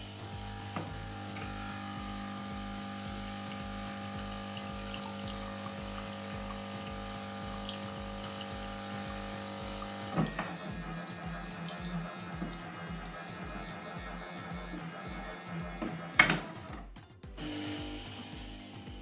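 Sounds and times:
water flowing: 0.0 - 13.4
espresso machine pump humming: 0.0 - 16.0, 17.4 - 19.0.

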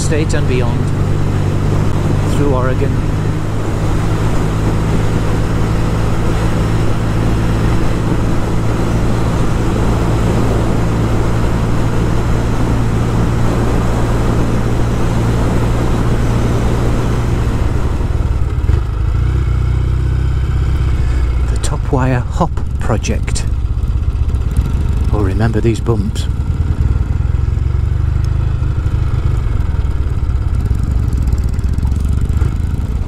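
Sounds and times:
wind rushing over microphone: 0.0 - 21.9
motorcycle engine running: 0.0 - 33.0.

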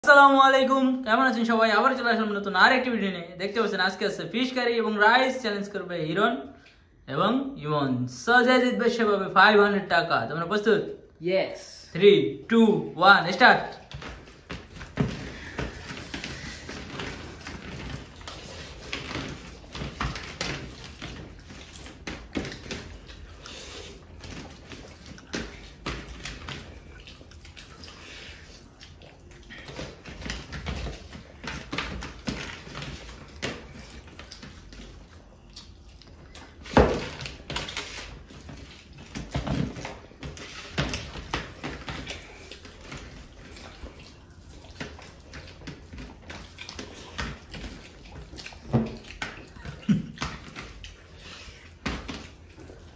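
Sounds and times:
hands squishing food: 13.2 - 52.9
eating noises: 13.8 - 52.9.

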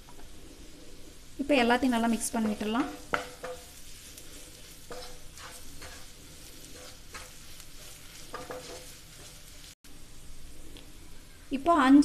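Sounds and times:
oil sizzling: 0.0 - 12.0
spatula scraping frying pan: 1.7 - 9.8.

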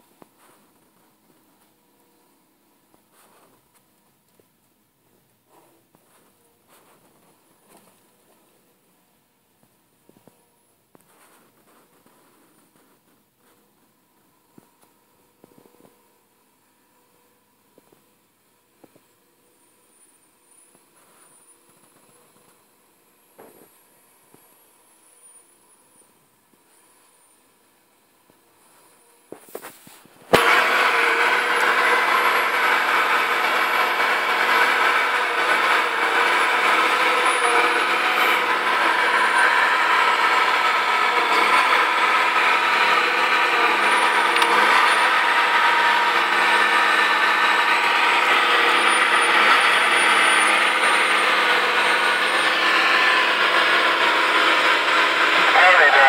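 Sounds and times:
diesel engine and hydraulics: 11.2 - 56.0
thin high whine: 28.6 - 56.0.

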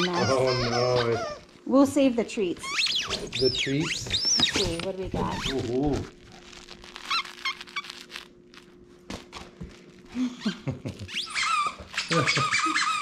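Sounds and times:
squeaky dog toy squeaking: 0.0 - 1.5, 2.6 - 5.6, 7.0 - 8.0, 11.1 - 13.0.

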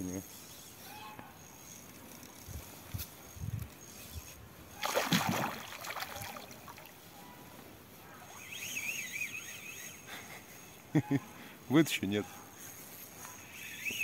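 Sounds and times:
fish thrashing and splashing: 4.8 - 7.0.

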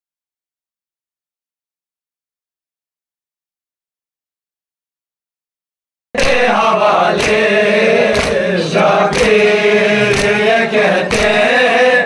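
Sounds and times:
sharp beat: 6.2 - 11.5
group of voices chanting: 6.2 - 12.0.

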